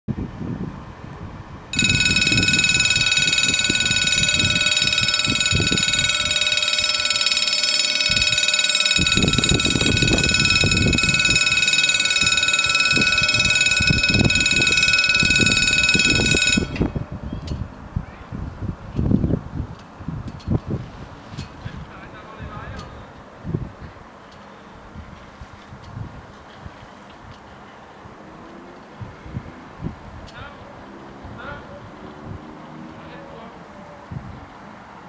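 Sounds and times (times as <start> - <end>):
level crossing warning bells: 1.8 - 17.2.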